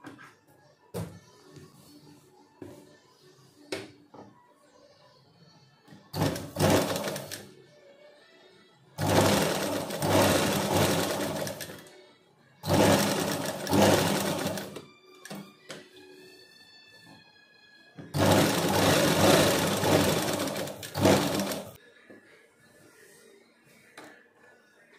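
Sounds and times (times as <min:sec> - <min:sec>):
sewing machine stitching: 0:06.2 - 0:07.5, 0:09.0 - 0:11.8, 0:12.6 - 0:15.4, 0:18.2 - 0:21.8.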